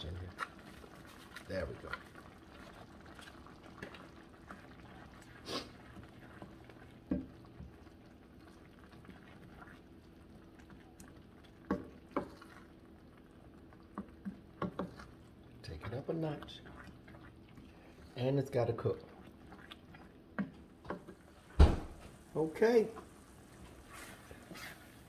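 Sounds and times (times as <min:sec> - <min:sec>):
wooden spoon stirring and scraping: 0:00.0 - 0:21.5, 0:22.6 - 0:25.0
food cooking softly in skillet: 0:00.0 - 0:25.0.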